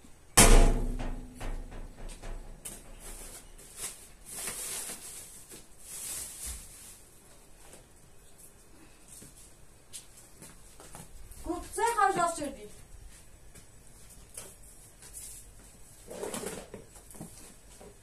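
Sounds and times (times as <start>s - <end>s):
loud thump with low rumble: 0.4s - 2.2s
rustling: 0.8s - 11.7s.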